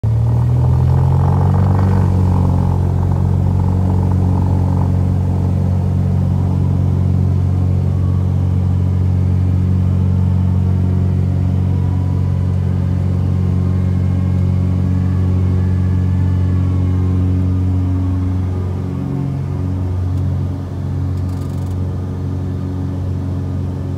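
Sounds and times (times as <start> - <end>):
propeller plane engine drone: 0.0 - 23.9.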